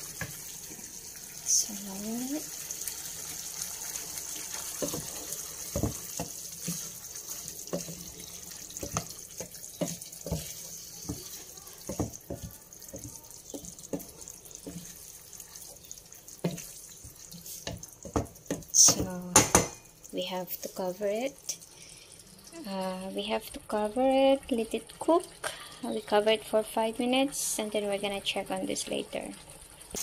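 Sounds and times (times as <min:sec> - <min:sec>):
food sizzling in a pan: 0:00.0 - 0:30.0
wooden spatula knocking a pan: 0:04.7 - 0:15.1, 0:16.4 - 0:19.9.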